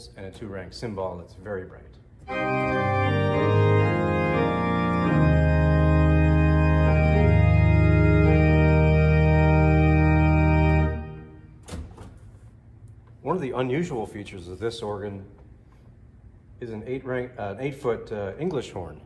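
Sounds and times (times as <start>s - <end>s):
deep bass organ note: 2.2s - 11.6s
pipe organ sustained chords: 2.2s - 11.7s.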